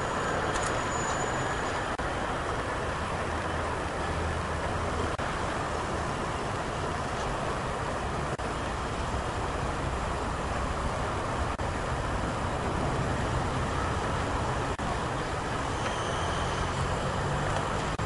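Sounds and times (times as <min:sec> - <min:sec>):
broad rushing noise: 0:00.0 - 0:18.0
low engine drone: 0:00.0 - 0:18.0.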